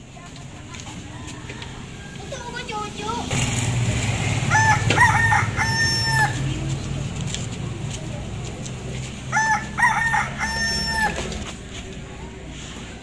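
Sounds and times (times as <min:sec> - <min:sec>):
rooster crowing: 0:01.1 - 0:02.6, 0:04.4 - 0:06.4, 0:09.3 - 0:11.4.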